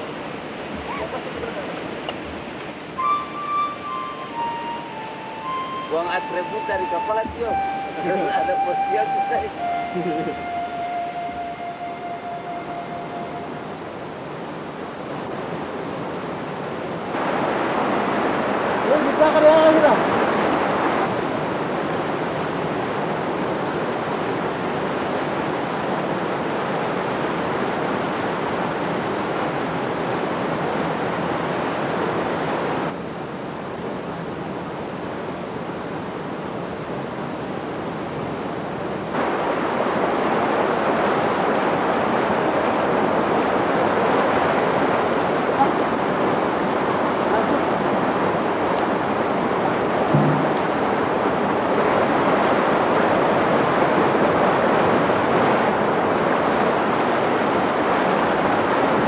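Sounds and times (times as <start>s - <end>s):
stream and waterfall rushing: 0.0s - 59.0s.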